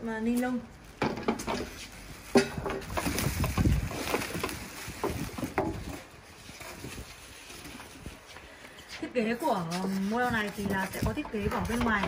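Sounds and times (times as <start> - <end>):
plastic bag crinkling: 1.9 - 8.2.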